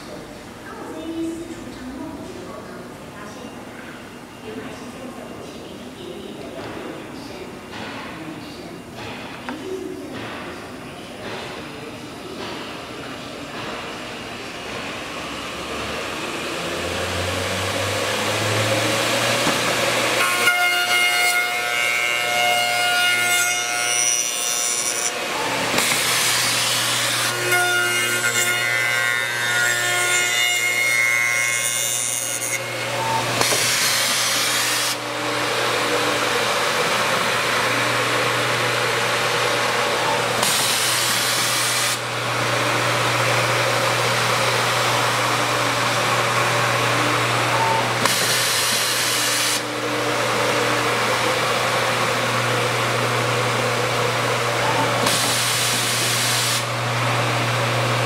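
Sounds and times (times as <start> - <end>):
cutter milling wood: 14.4 - 58.0.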